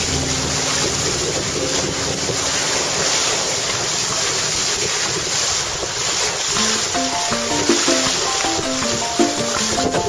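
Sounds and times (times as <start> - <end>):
plucked-string music: 0.0 - 3.0, 6.6 - 10.0
wind blowing on microphone: 0.0 - 6.6
water rushing past hulls: 0.0 - 10.0.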